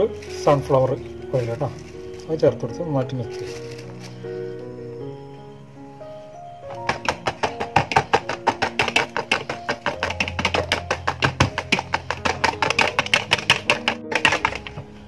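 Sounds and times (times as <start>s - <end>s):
background music with held notes: 0.0s - 15.0s
whisk clicking against plastic bowl: 6.8s - 14.8s.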